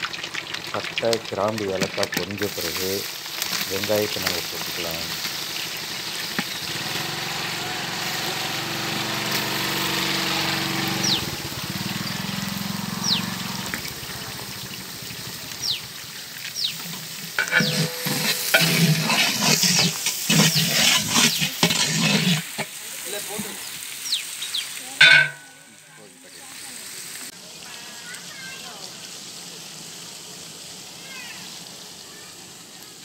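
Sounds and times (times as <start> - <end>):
onions sizzling in oil: 0.0 - 33.0
metal ladle scraping a pot: 16.9 - 22.8, 25.0 - 25.8.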